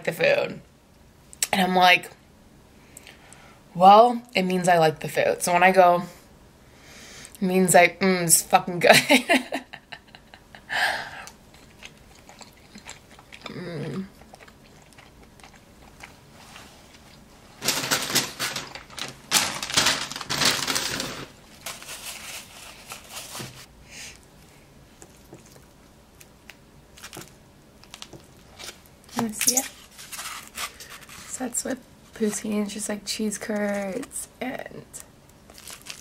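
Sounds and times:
close-up chewing: 0:11.2 - 0:17.3, 0:24.2 - 0:28.9
paper bag crinkling: 0:17.6 - 0:23.7, 0:26.9 - 0:31.4, 0:35.5 - 0:36.0.

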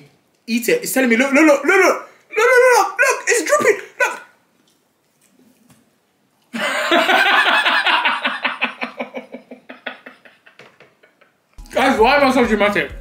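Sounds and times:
man laughing hard: 0:06.6 - 0:11.4.

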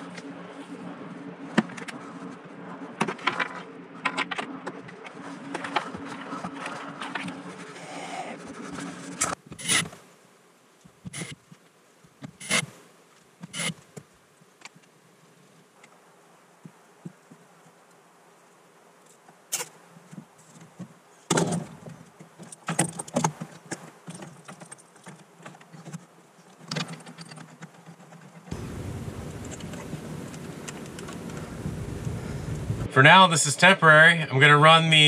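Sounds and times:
low hum: 0:28.5 - 0:34.4.

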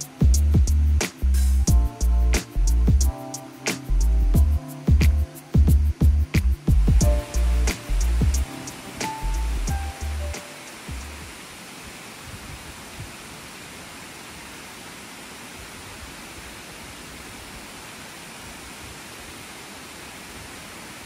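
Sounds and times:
water rushing down spillway: 0:06.9 - 0:21.0.

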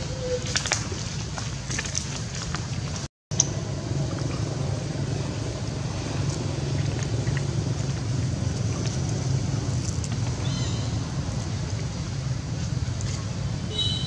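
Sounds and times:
low rumble: 0:03.3 - 0:13.7.

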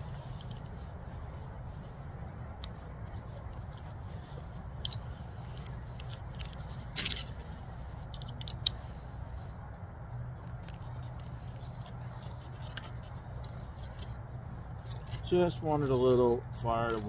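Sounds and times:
steady low rumble: 0:00.0 - 0:17.0
twigs snapping: 0:04.8 - 0:08.9, 0:10.4 - 0:17.0.

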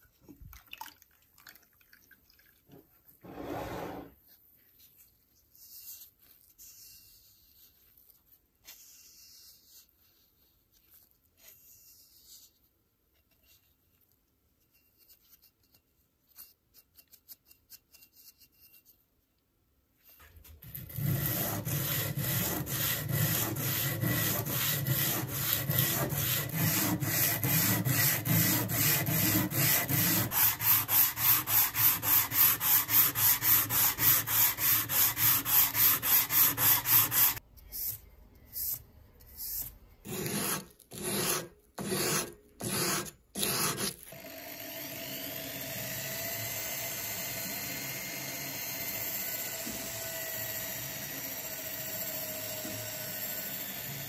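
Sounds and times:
hand sanding strokes: 0:20.7 - 0:38.0, 0:39.4 - 0:43.9
small motor running: 0:44.1 - 0:54.0.

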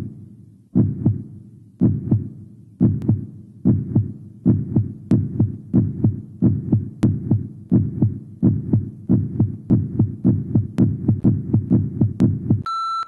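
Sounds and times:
heartbeat thuds: 0:00.0 - 0:12.7
steady electronic beep: 0:12.6 - 0:13.0.

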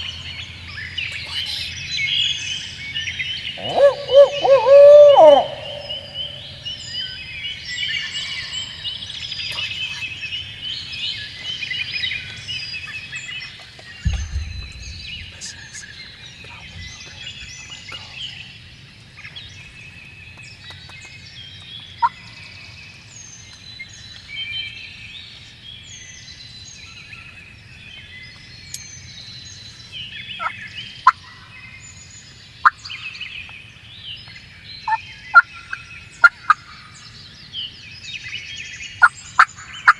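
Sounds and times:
songbirds chirping and singing: 0:00.0 - 0:39.9
short sharp bird calls: 0:03.5 - 0:06.8
turkeys gobbling: 0:03.6 - 0:06.6
low thump: 0:14.0 - 0:15.7.

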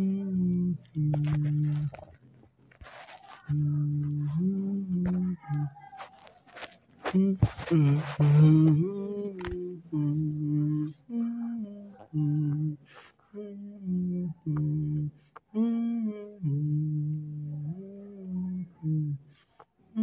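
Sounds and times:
person humming: 0:00.0 - 0:02.2, 0:02.8 - 0:19.4.

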